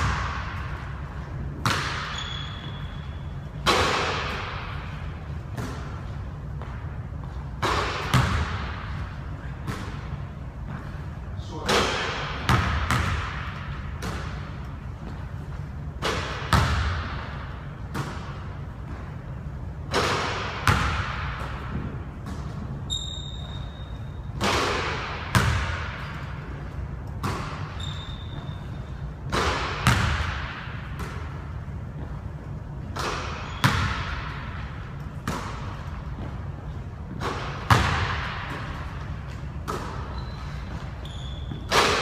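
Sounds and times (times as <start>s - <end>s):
sneaker squeaks: 1.6s - 3.7s, 21.7s - 24.5s, 25.4s - 30.1s, 32.8s - 37.9s, 38.5s - 42.0s
basketball bouncing on hardwood: 25.3s - 25.8s.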